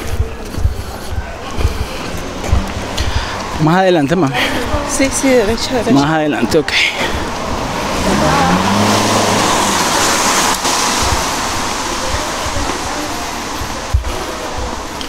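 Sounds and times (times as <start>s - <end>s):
car driving past: 7.0s - 13.6s.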